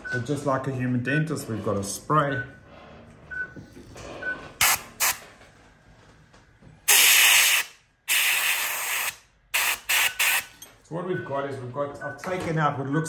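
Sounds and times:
dental air-water syringe hissing: 6.9s - 10.5s.

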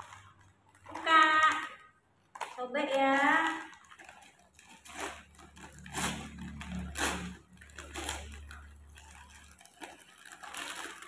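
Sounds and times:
wrapping paper tearing and crinkling: 0.0s - 11.0s.

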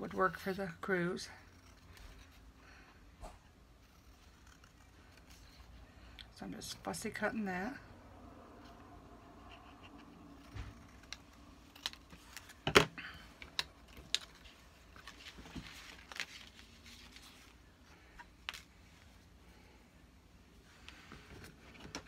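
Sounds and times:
paper and tools handled: 13.4s - 18.8s.

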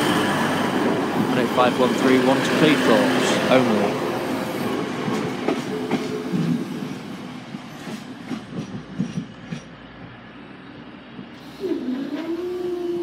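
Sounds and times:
train wheels clicking over rail joints: 4.6s - 10.2s.

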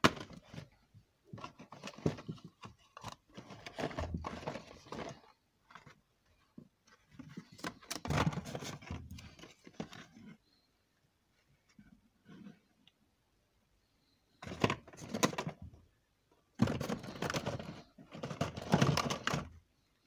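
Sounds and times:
packaging rustling and knocking: 1.3s - 5.9s, 16.6s - 19.6s.

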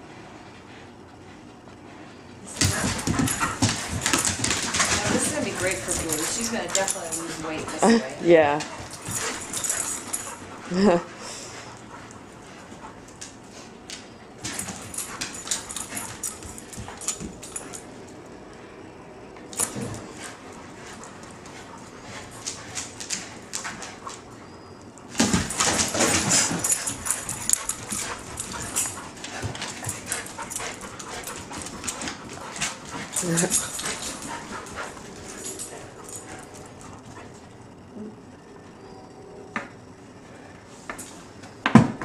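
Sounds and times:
dog vocal sounds: 2.4s - 12.2s, 25.5s - 37.3s
dogs scuffling: 2.5s - 18.2s, 19.4s - 24.4s, 25.0s - 37.5s.

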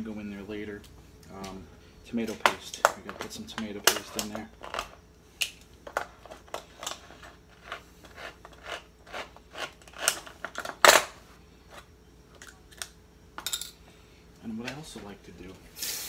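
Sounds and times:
can opener clicking and crunching: 7.7s - 11.1s.

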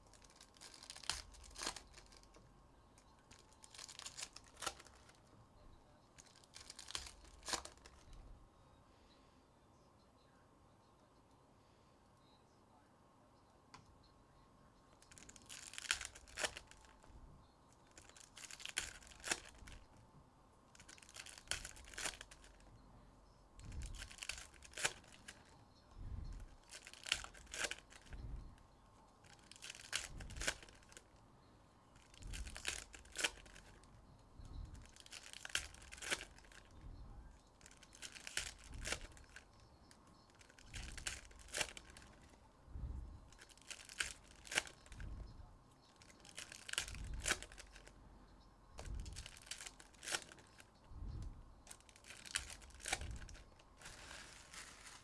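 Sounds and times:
foil packs tearing and crinkling: 0.1s - 2.4s, 3.3s - 5.2s, 6.2s - 8.0s, 15.1s - 16.9s, 17.9s - 19.8s, 20.8s - 22.6s, 23.8s - 25.4s, 26.6s - 28.1s, 29.2s - 31.0s, 32.0s - 33.7s, 34.8s - 36.7s, 37.6s - 39.4s, 40.3s - 42.2s, 43.3s - 45.0s, 46.0s - 47.9s, 49.0s - 50.6s, 51.7s - 55.0s.

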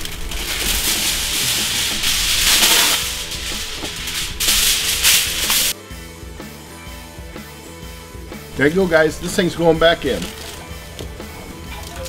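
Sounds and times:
aluminum foil crinkling: 0.0s - 5.8s, 9.2s - 12.0s
background music: 0.0s - 12.0s.

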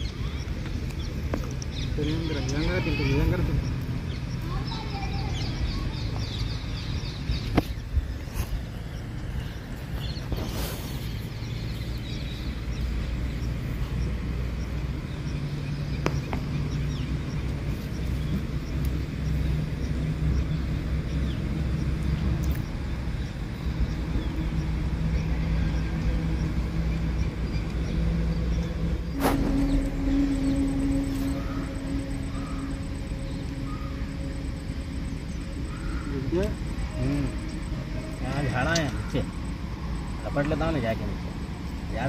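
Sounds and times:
motor humming: 16.8s - 42.0s
high steady tone: 28.9s - 42.0s.

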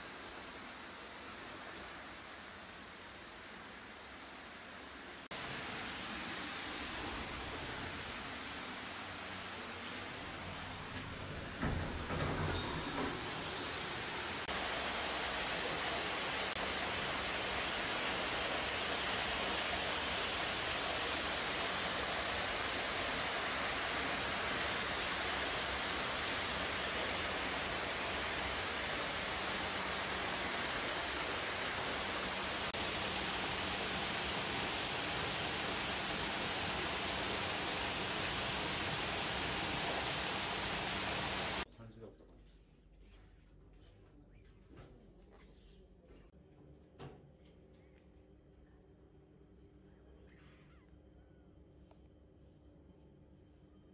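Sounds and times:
waterfall splashing into pool: 13.4s - 41.6s.

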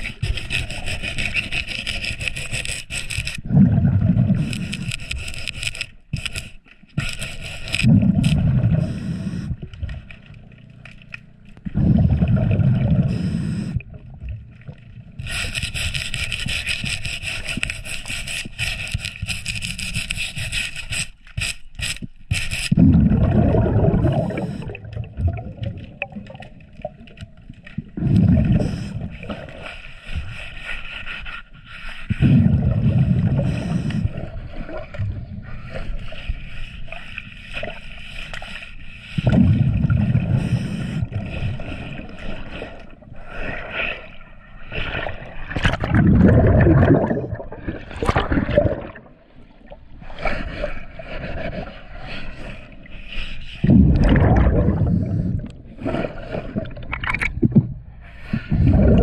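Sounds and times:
brush scrubbing boat hull: 0.0s - 3.4s, 15.2s - 22.7s
underwater bubbles gurgling: 3.2s - 5.0s, 7.7s - 15.4s, 22.7s - 30.2s, 32.1s - 36.3s, 39.1s - 52.9s, 53.5s - 59.0s
diver breathing hiss: 8.8s - 9.6s, 13.0s - 13.8s, 28.5s - 32.3s, 33.3s - 34.8s, 40.2s - 44.6s.

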